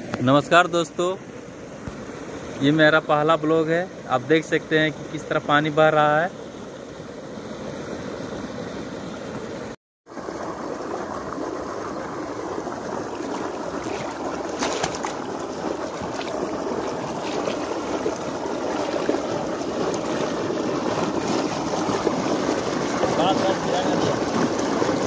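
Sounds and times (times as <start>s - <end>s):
water rushing along a channel: 0.0s - 25.0s.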